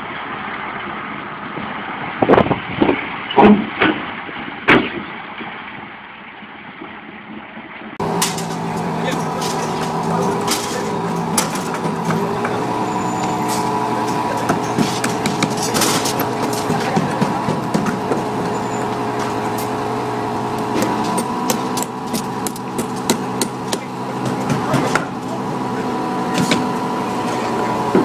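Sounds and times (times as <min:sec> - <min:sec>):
diesel engine running: 0:08.0 - 0:28.0
metallic knocks and clanks: 0:08.0 - 0:28.0.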